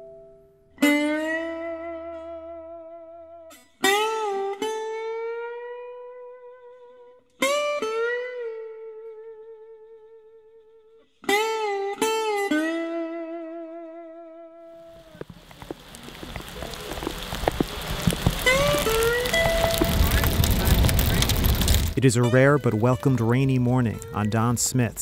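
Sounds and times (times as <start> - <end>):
plucked guitar chords: 0.0 - 9.9, 18.4 - 25.0.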